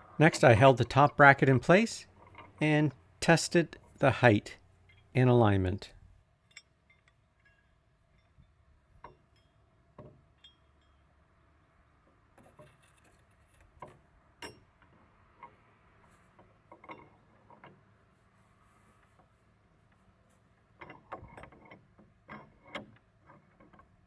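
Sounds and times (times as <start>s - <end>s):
metal bolt clicks and clinks: 6.4s - 11.1s.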